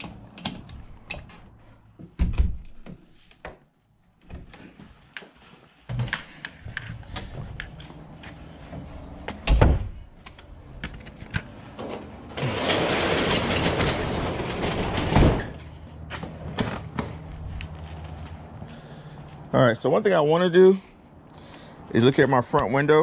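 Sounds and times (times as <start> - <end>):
door thumping shut: 9.5 - 9.9.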